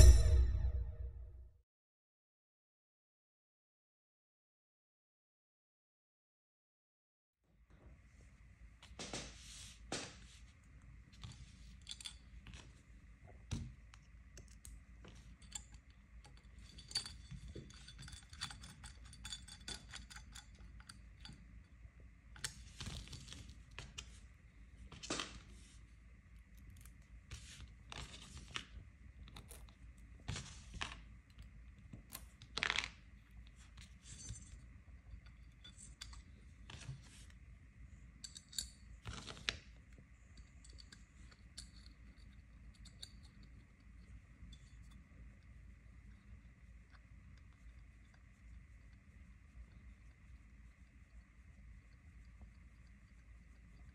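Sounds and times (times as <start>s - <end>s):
metal parts clicking and scraping: 11.7s - 12.3s, 15.3s - 21.4s, 40.4s - 43.6s.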